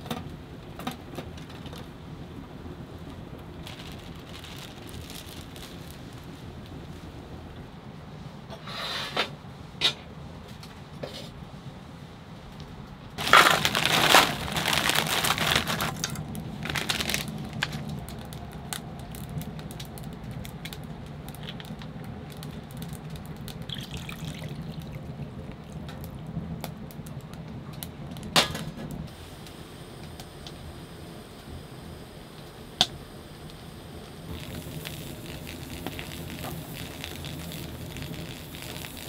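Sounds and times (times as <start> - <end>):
water poured into metal pot: 23.7 - 25.1.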